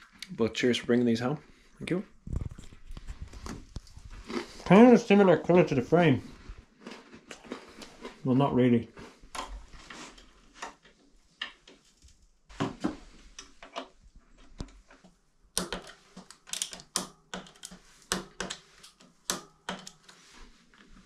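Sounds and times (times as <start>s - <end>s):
small clicks and taps of bike parts: 14.5s - 20.1s.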